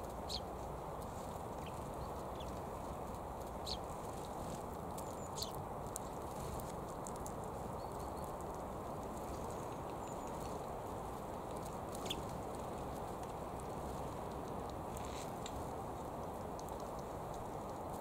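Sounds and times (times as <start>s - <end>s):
birds pecking clicks: 0.1s - 18.0s
sparrow chirps: 0.2s - 2.6s, 3.6s - 4.3s, 5.0s - 5.6s, 7.7s - 8.4s, 11.9s - 12.4s.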